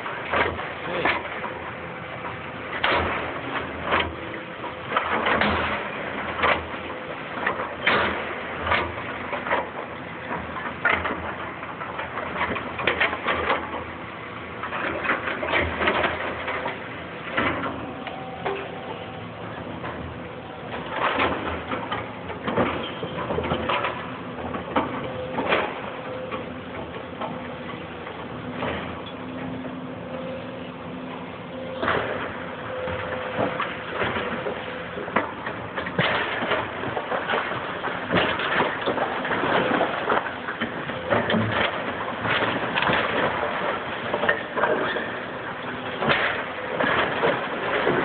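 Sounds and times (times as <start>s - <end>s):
rubble crashing and clanking: 0.0s - 29.7s, 31.4s - 48.0s
excavator engine running: 0.0s - 48.0s.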